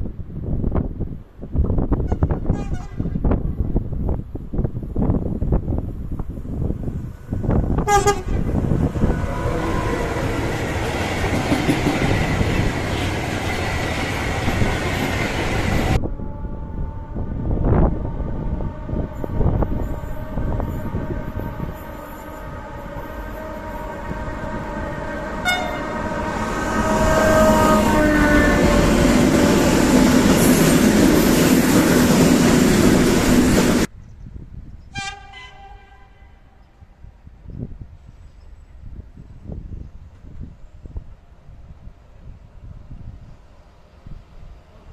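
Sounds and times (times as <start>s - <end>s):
passing train rushing: 0.0s - 33.9s
train horn blast: 2.0s - 3.4s, 7.8s - 10.7s, 15.7s - 30.7s, 34.9s - 36.6s
train held steady tones: 2.1s - 33.9s.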